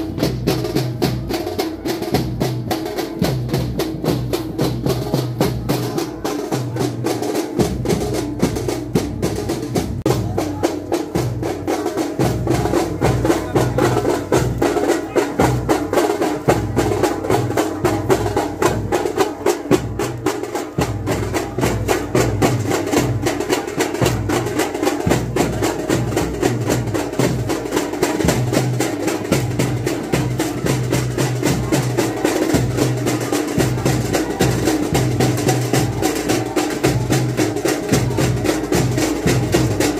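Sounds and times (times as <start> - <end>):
procession drums playing fast: 0.0 - 39.9.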